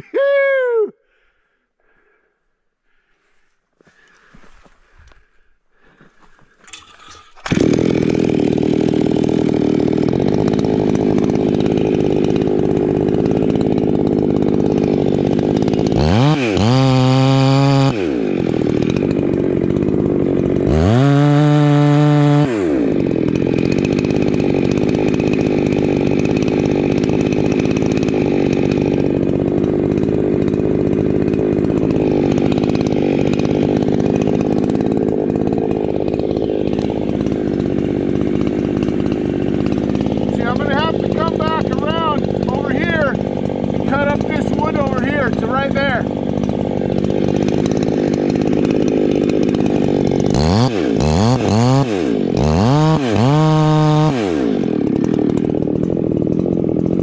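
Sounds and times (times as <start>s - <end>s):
chainsaw cutting wood: 2.9s - 57.0s.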